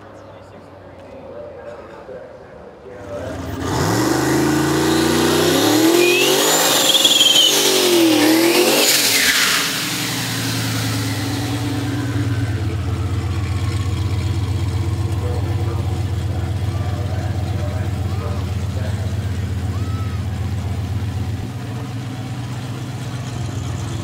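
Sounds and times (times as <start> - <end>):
car engine revving: 3.0 - 24.0
tires squealing and whistling: 3.1 - 24.0.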